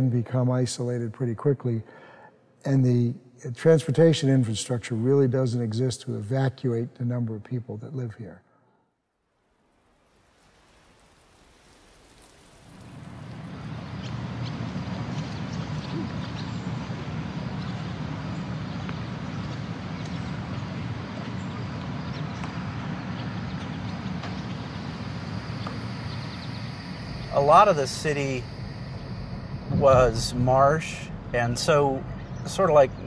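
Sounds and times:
faint chirps: 23.5 - 33.0
low rumble: 23.8 - 33.0.

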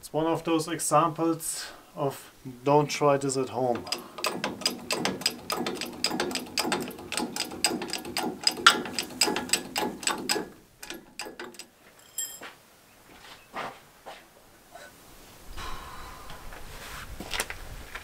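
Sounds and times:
hydraulic jack pumping clicks: 3.7 - 11.7
scattered knocks: 3.7 - 11.7.

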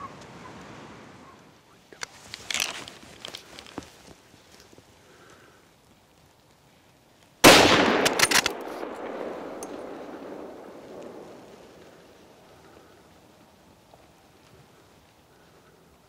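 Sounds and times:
rifle shot with echo: 7.4 - 12.4.

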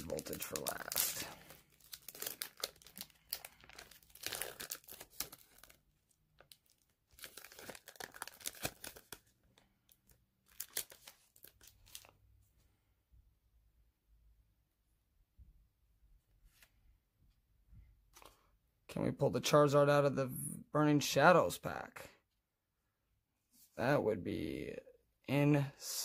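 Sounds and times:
foil wrapper crinkling and tearing: 0.0 - 5.8, 6.4 - 12.1.

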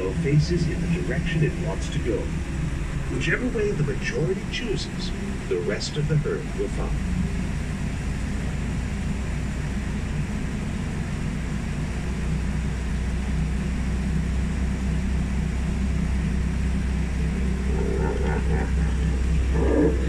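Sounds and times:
tram hum and rumble: 0.0 - 20.0.

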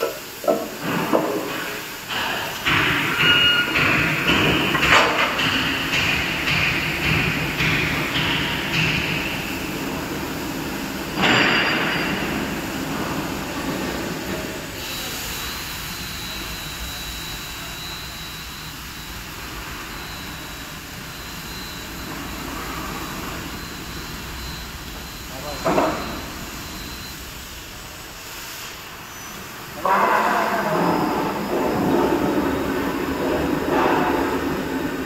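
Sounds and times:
overhead crane mechanical drone: 2.0 - 29.0
faint high whine: 11.2 - 35.0.

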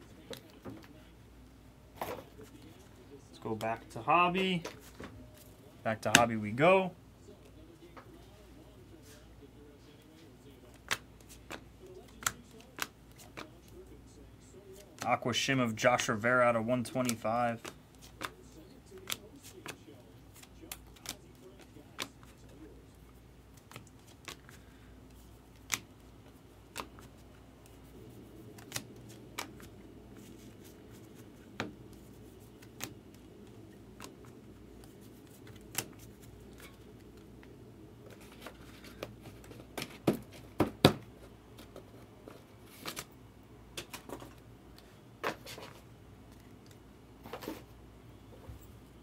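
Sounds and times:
cards flipping with clicks: 10.7 - 13.8, 17.0 - 22.6, 23.5 - 26.0, 26.7 - 27.8, 28.4 - 40.5, 42.7 - 43.1.

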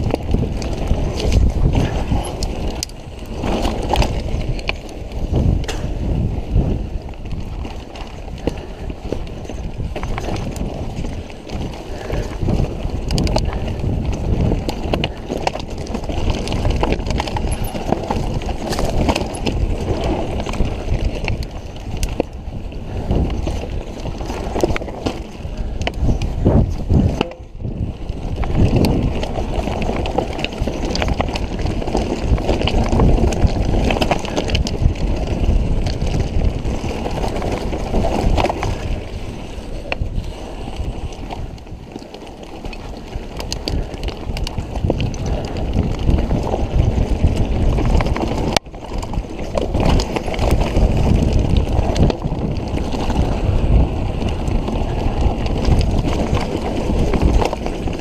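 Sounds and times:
bike knocking and rattling on rocks: 0.0 - 58.0
mountain bike tyres rumbling: 0.0 - 58.0.

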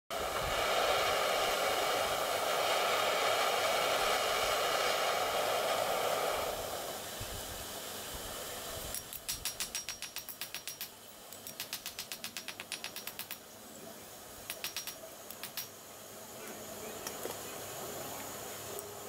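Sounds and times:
steady rushing hiss: 0.1 - 19.0
hammer tapping on anvil: 9.0 - 13.4, 14.4 - 15.7.

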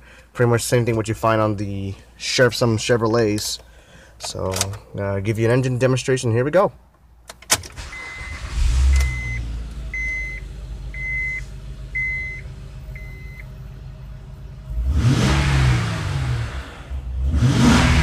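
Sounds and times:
dashboard warning chime beeping: 7.8 - 13.5
car engine idling and revving: 7.8 - 18.0.

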